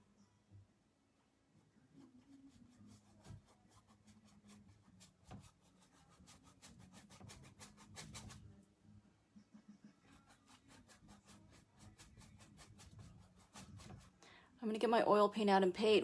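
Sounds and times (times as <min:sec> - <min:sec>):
paintbrush strokes on canvas: 0:01.8 - 0:08.6, 0:10.0 - 0:14.2.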